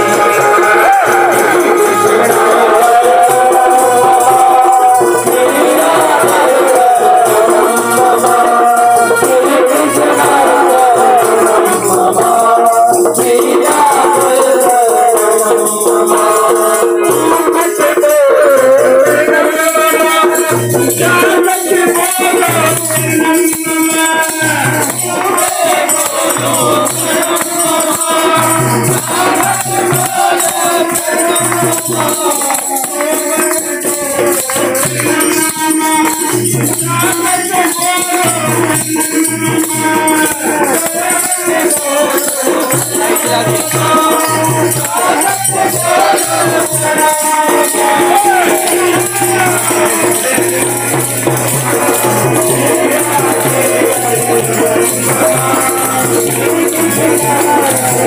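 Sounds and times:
harmonium drone: 0:00.0 - 0:15.8
man singing: 0:00.0 - 0:58.0
rattling hand percussion: 0:00.0 - 0:58.0.

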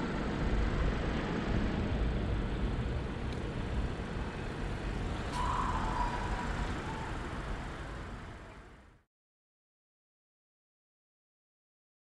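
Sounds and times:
traffic rumble: 0:00.0 - 0:09.0.

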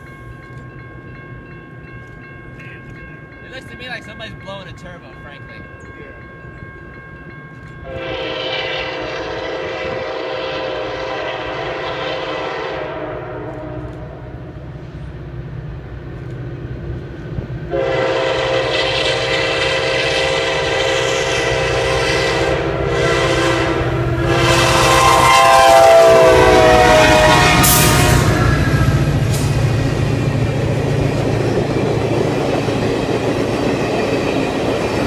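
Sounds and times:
train wheels on rails: 0:00.0 - 0:35.0
train horn blast: 0:07.8 - 0:14.5, 0:17.7 - 0:29.5.

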